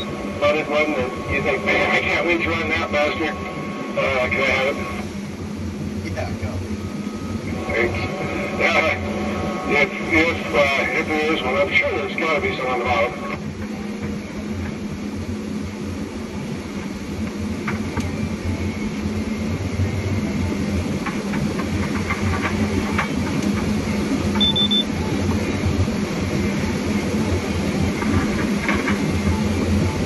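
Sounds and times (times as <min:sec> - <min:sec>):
diesel engine and hydraulics droning: 0:00.0 - 0:30.0
high beep: 0:24.4 - 0:25.0.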